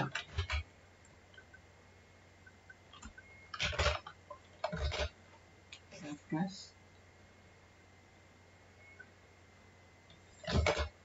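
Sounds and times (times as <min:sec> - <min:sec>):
keyboard and mouse clicks: 0:00.0 - 0:01.6, 0:02.4 - 0:05.9
faint steady hum: 0:00.0 - 0:11.0.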